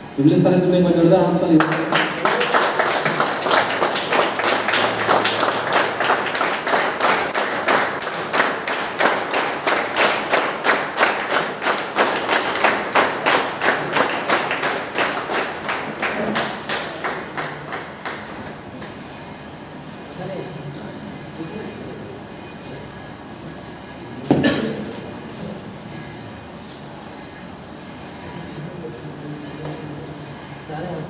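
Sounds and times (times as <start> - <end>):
crowd clapping in unison: 1.6 - 19.0.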